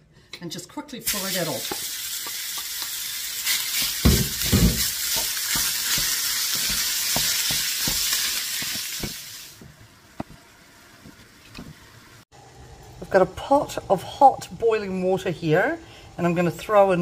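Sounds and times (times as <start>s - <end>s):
meat sizzling in frying pan: 1.1s - 9.7s.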